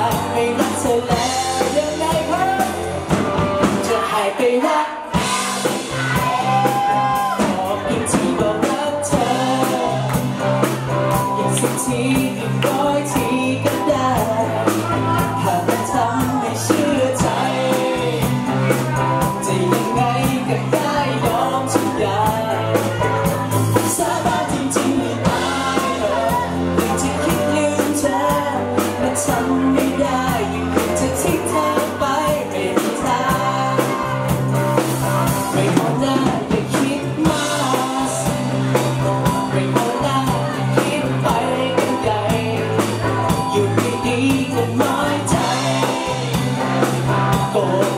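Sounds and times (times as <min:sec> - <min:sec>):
live pop-rock band playing: 0:00.0 - 0:47.9
man singing: 0:00.0 - 0:47.9.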